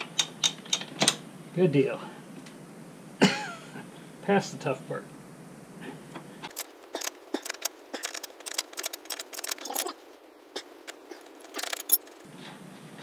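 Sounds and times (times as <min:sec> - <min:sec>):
metal tools clicking and rattling: 0:06.5 - 0:10.0, 0:10.9 - 0:12.2.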